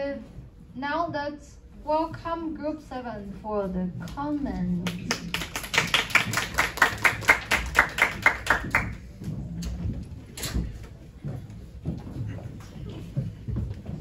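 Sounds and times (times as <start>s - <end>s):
hands clapping: 4.8s - 9.0s
footsteps on hard floor: 8.9s - 14.0s.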